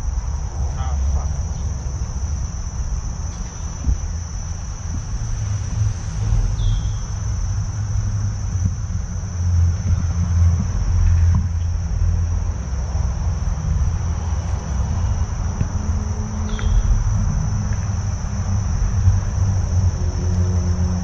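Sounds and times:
high-pitched insect drone: 0.0 - 21.0
low uneven rumble: 0.0 - 21.0.

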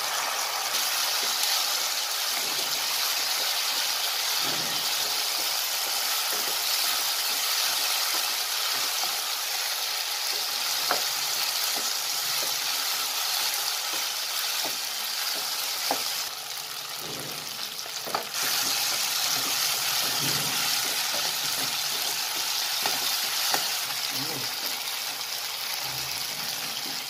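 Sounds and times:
vegetables sizzling in a wok: 0.0 - 27.0
spatula knocking and scraping pan: 17.2 - 23.7.

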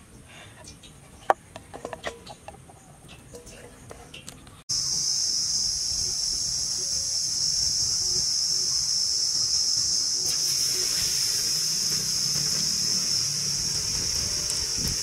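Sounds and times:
hot oil sizzling: 4.7 - 15.0
rough wide sizzle: 4.7 - 15.0.

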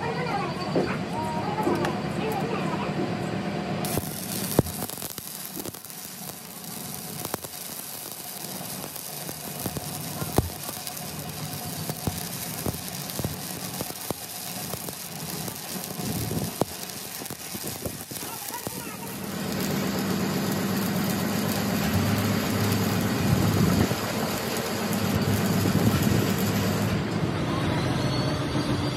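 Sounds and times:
sharp welding pops: 3.8 - 27.0
welding arc crackling: 3.8 - 27.0.

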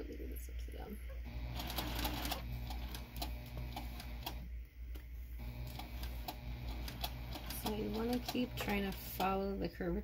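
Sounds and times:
sewing machine stitching: 1.3 - 4.5, 5.4 - 9.5.

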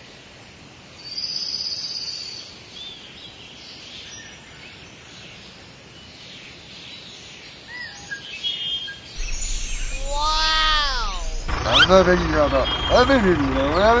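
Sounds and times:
small birds chirping: 9.2 - 11.9
loud high buzzing trill: 9.2 - 12.5.

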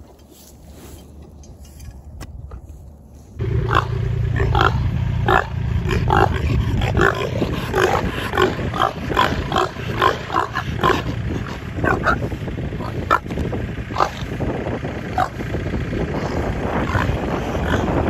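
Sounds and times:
pigs grunting: 3.4 - 14.4, 15.0 - 15.5, 16.1 - 18.0.

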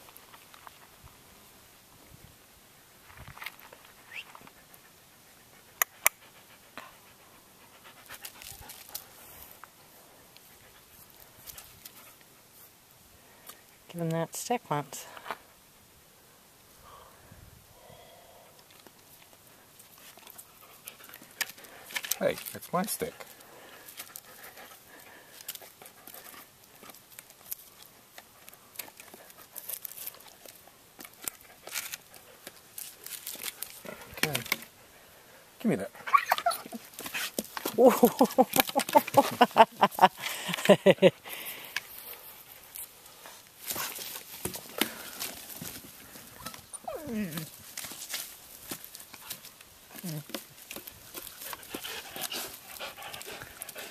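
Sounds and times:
dog panting: 4.4 - 9.3, 22.8 - 27.0, 51.1 - 53.9
dog gnawing wooden stick: 19.9 - 34.7, 47.3 - 53.9.

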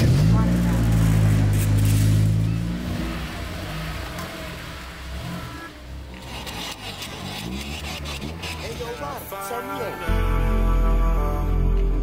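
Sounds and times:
car engine running at low revs: 0.0 - 9.2.

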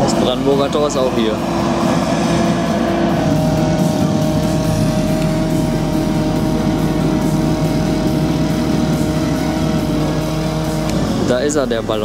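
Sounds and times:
steady motor drone: 0.0 - 12.0.

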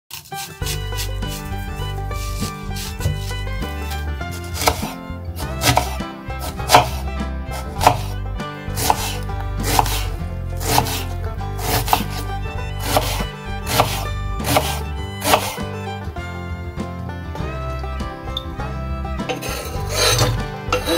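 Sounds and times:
background music: 0.1 - 20.9
knife knocking on cutting board: 2.8 - 3.3, 6.7 - 7.0.

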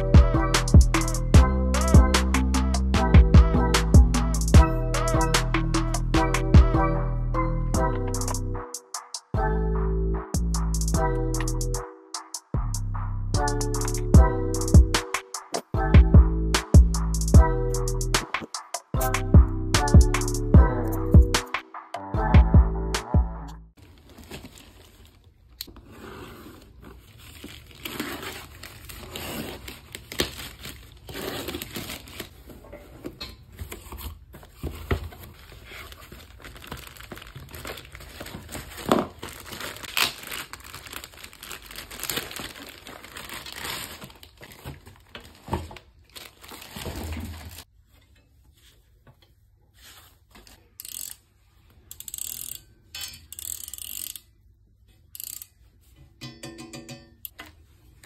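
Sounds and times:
plastic packaging crinkling and tearing: 23.8 - 25.7, 26.6 - 32.6, 33.7 - 47.7.

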